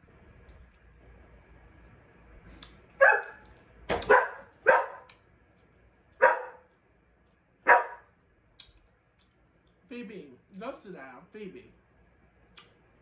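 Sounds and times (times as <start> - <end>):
dog barking: 3.0 - 5.1, 6.2 - 6.7, 7.6 - 8.1.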